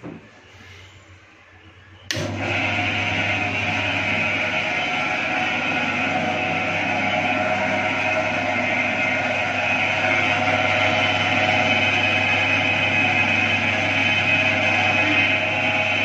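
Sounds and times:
electric motor humming and whining: 2.1 - 16.0.

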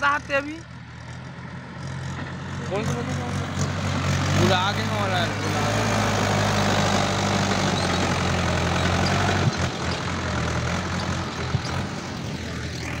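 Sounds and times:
tractor diesel engine idling: 0.0 - 13.0.

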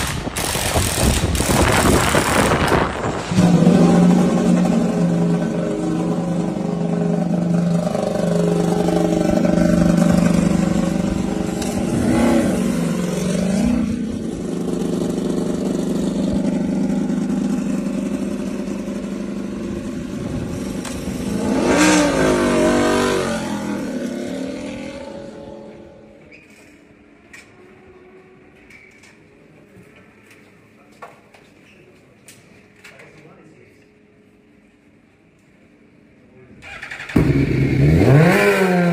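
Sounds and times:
motorcycle engine idling: 14.0 - 21.3.

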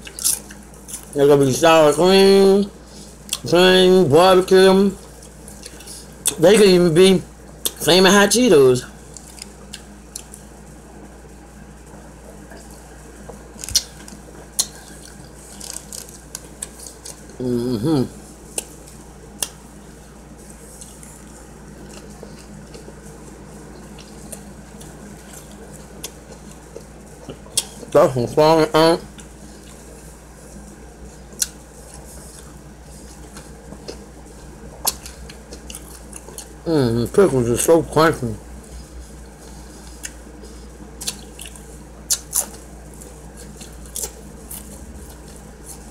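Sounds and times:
person chewing: 0.0 - 1.2, 5.1 - 6.4, 9.1 - 10.5, 12.5 - 19.6, 20.6 - 27.9, 29.0 - 30.6, 31.2 - 36.6, 38.6 - 45.9
low room hum: 0.0 - 45.9
wet mouth clicks while chewing: 34.8 - 36.5, 39.9 - 40.2, 41.0 - 45.4.

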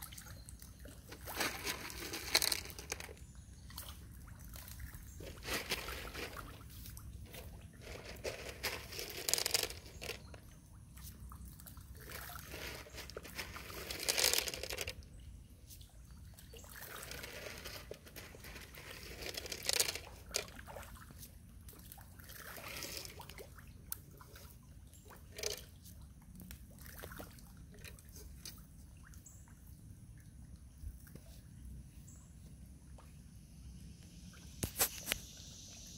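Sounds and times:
fish splashing in water: 0.0 - 7.8, 8.5 - 14.9, 16.4 - 25.6.

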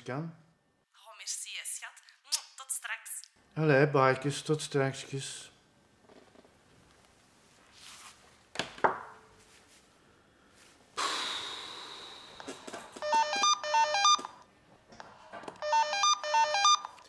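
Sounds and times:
telephone ringing with electronic trill: 13.0 - 14.4, 15.6 - 17.0.

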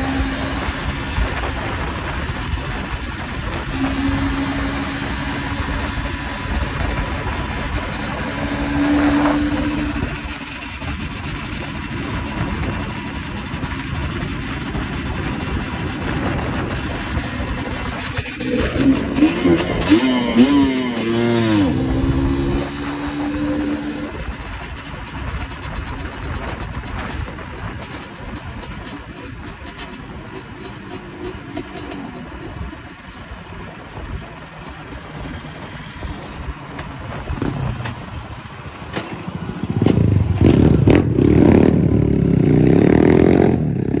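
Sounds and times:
dirt bike engine revving: 3.3 - 24.4, 39.0 - 44.0.

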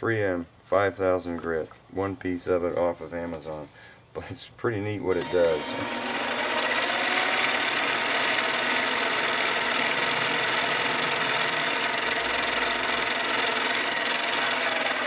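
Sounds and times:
lathe running: 5.2 - 15.0
sanding pad polishing metal: 5.5 - 15.0.

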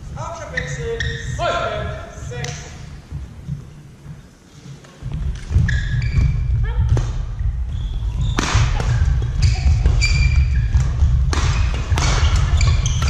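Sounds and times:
shoe squeaks on court floor: 0.5 - 1.4, 5.5 - 6.5, 9.4 - 10.8, 11.5 - 13.0
thudding footfalls: 5.0 - 13.0
racket hitting shuttlecock: 8.2 - 13.0.

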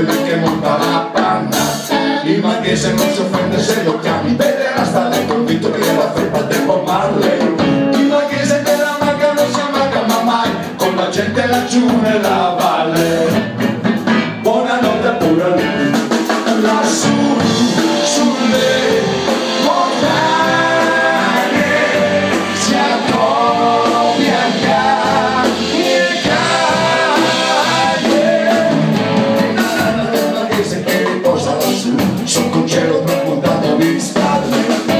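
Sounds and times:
man singing: 0.0 - 13.6, 14.4 - 34.9
bass guitar: 0.0 - 34.9
drums: 0.0 - 34.9
electric guitar: 0.0 - 34.9.

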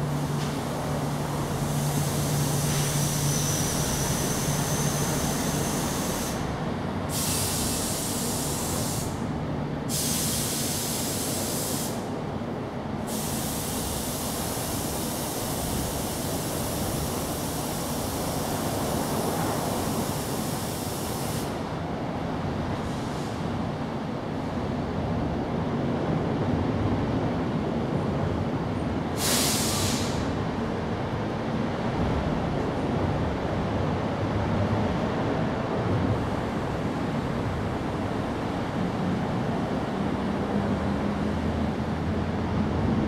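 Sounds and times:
outdoor background rush: 0.0 - 10.0, 30.1 - 43.0
high hiss: 7.1 - 9.2, 13.1 - 21.6, 29.2 - 30.3.

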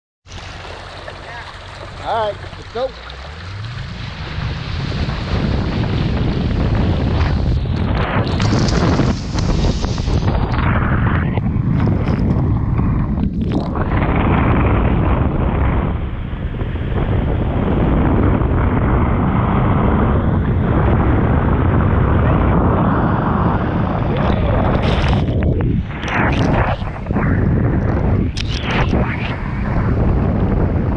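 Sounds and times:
water splashing: 0.2 - 11.0
rushing water and spray: 0.3 - 12.2
wind buffeting microphone: 0.3 - 30.9.

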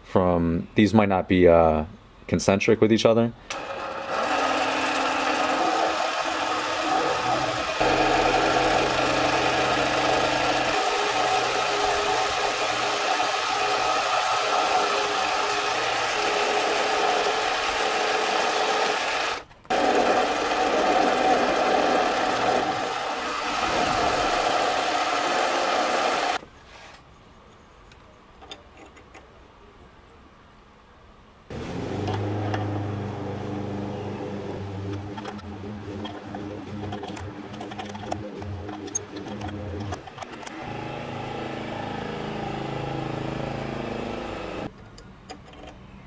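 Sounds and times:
metal lathe whirring: 3.5 - 26.4
low hum: 31.5 - 44.7.

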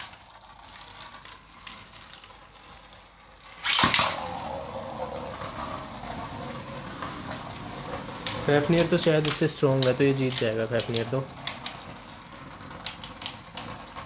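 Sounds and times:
spinning tops whirring: 0.0 - 14.0
spinning top launch rasp: 3.5 - 14.0.

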